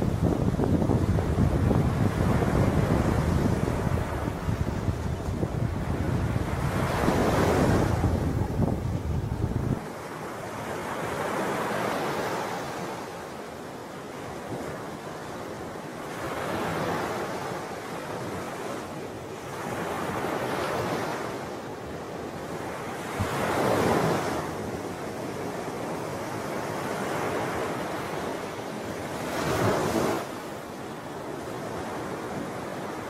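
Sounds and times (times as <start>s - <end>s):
small waves washing on shore: 0.0s - 33.0s
wind: 0.0s - 33.0s.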